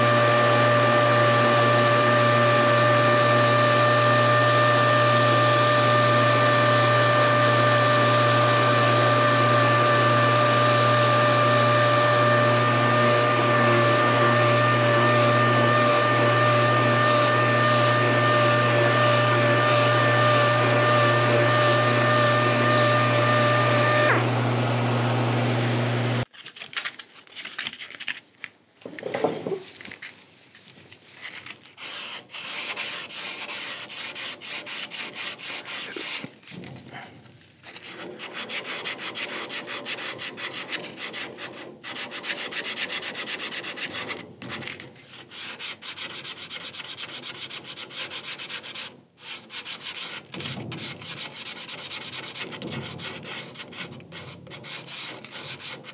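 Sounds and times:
sandpaper strokes on wood: 0:00.0 - 0:24.2, 0:31.8 - 0:36.4, 0:37.7 - 0:44.2, 0:45.1 - 0:55.9
orbital sander whining: 0:00.0 - 0:26.2.

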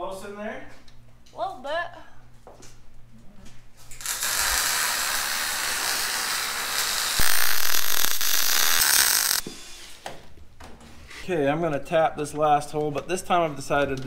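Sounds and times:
welding arc sizzling: 0:03.9 - 0:09.4.

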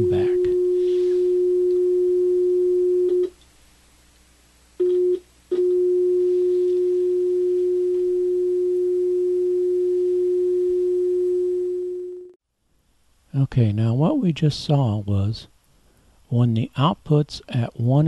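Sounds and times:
steady sine-wave test tone: 0:00.0 - 0:03.3, 0:04.8 - 0:12.4.

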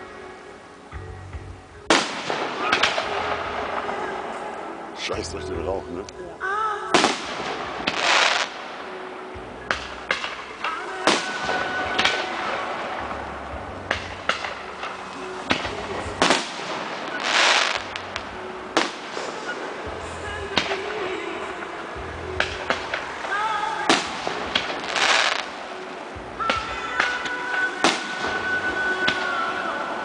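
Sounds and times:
fireworks bursting with sharp bangs: 0:01.8 - 0:05.3, 0:06.9 - 0:30.0
hissing firework burst: 0:01.9 - 0:04.5, 0:06.9 - 0:08.9, 0:13.9 - 0:19.9, 0:22.4 - 0:26.0.

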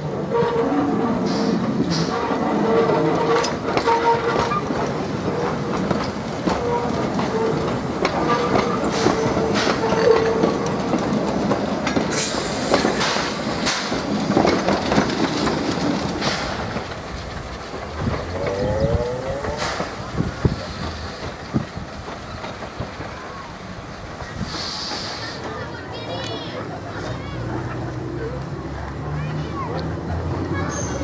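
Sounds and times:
train wheels rumbling over rail joints: 0:00.0 - 0:31.0.

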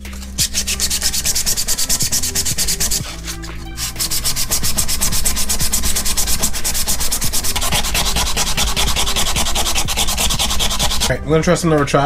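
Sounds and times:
sandpaper rubbing by hand: 0:00.0 - 0:11.2.

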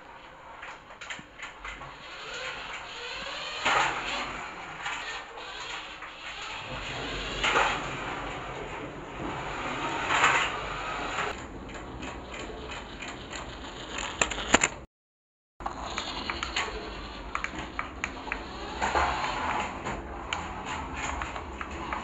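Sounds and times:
toy car motor and gears: 0:00.4 - 0:14.8, 0:15.6 - 0:22.0
short clicks and ticks: 0:11.2 - 0:14.9.

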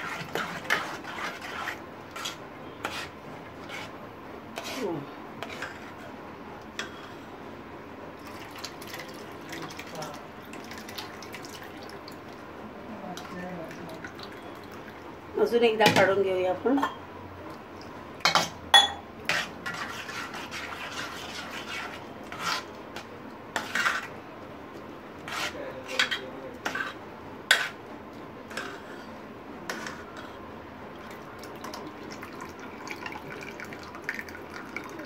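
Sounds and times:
spoon scraping steel bowl: 0:00.0 - 0:03.9, 0:04.6 - 0:06.1, 0:19.3 - 0:22.8, 0:23.6 - 0:24.1, 0:25.3 - 0:27.8, 0:28.5 - 0:30.4
water trickling into pot: 0:08.2 - 0:12.4, 0:30.9 - 0:35.0.

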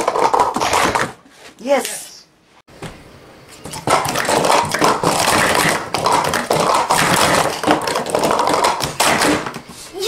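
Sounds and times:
plastic cups clattering: 0:00.0 - 0:01.2, 0:03.6 - 0:09.7.

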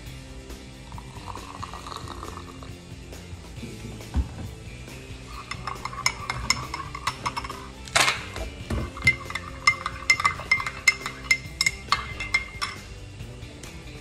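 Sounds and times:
spoon rasping: 0:00.9 - 0:02.8, 0:05.3 - 0:13.0
metal spoon clinking in ceramic mug: 0:05.3 - 0:13.0.

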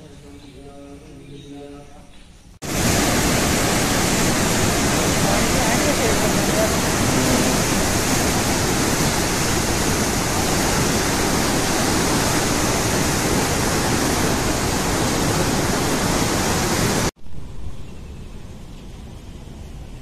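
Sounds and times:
faint hiss: 0:00.0 - 0:17.1
river water rushing: 0:02.6 - 0:17.1.

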